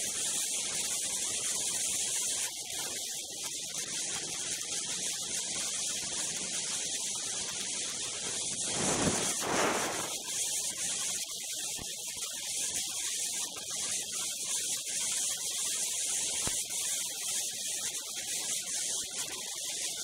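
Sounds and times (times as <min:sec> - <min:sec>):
wind rushing over microphone: 0:08.6 - 0:10.2.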